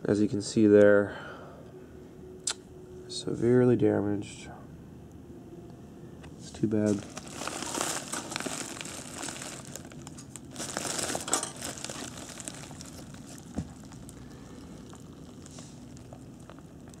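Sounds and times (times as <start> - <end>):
bubble wrap crinkling: 6.8 - 17.0.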